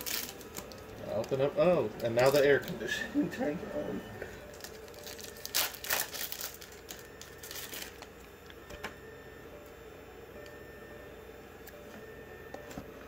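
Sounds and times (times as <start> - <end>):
film wrapper tearing and crinkling: 0.0 - 2.9, 4.4 - 8.2
air conditioning hum: 0.0 - 13.0.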